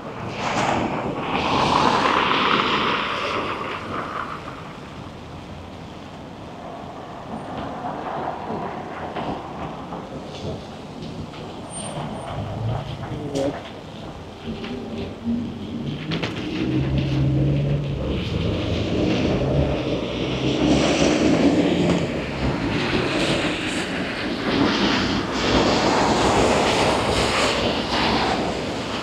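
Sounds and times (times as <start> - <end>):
passing vehicles: 0.0 - 29.0
vehicle engine humming: 4.4 - 24.8.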